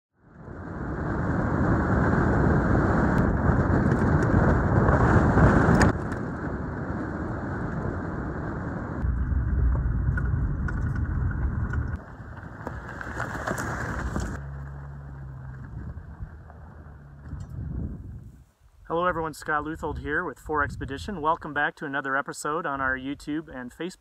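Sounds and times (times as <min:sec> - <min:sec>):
car driving on dirt road: 0:00.2 - 0:18.4
deep rumble: 0:00.2 - 0:18.4.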